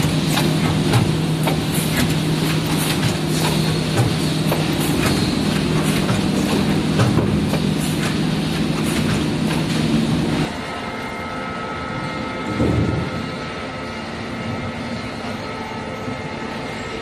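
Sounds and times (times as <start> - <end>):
bundles clattering on roller conveyor: 0.0 - 10.7, 12.4 - 13.4
low machine hum: 0.0 - 17.0.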